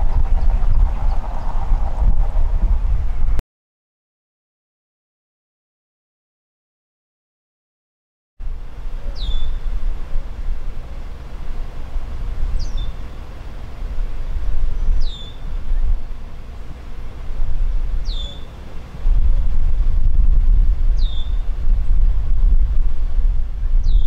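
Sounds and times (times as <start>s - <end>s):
low outdoor rumble: 0.0s - 3.4s, 8.4s - 24.0s
bird whistling: 9.2s - 9.6s, 12.6s - 13.0s, 14.8s - 15.4s, 18.0s - 18.6s, 21.0s - 21.4s.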